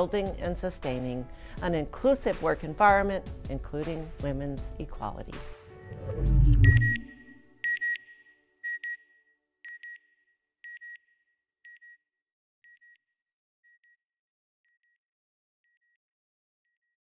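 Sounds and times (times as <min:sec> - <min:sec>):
high electronic double beep: 0:05.8 - 0:08.0.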